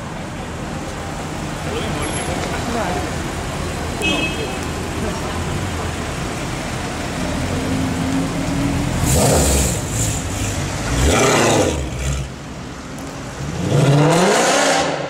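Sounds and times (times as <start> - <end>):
car engine rumbling: 0.0 - 15.0.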